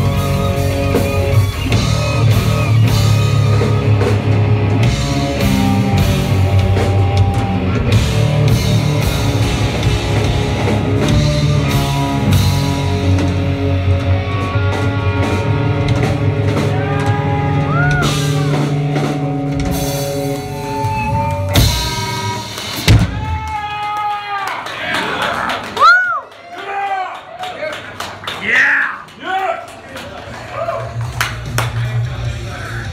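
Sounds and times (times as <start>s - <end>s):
distorted electric guitars: 0.0s - 23.4s
drum kit: 0.0s - 23.8s, 30.8s - 32.9s.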